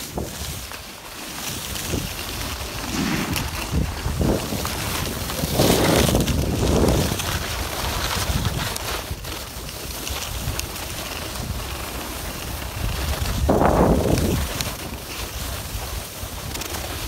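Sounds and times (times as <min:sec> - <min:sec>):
skis scraping on snow: 0:00.0 - 0:17.0
wind buffeting microphone: 0:01.4 - 0:14.8.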